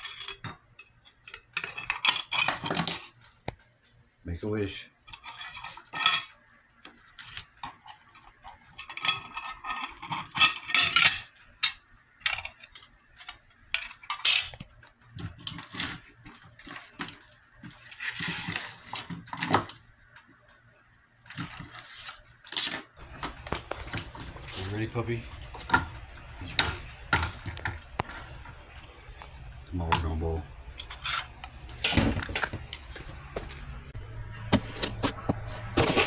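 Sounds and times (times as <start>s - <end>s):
metal and glass objects clinking: 0.0s - 3.1s, 5.1s - 6.4s, 7.0s - 14.6s, 15.3s - 19.6s.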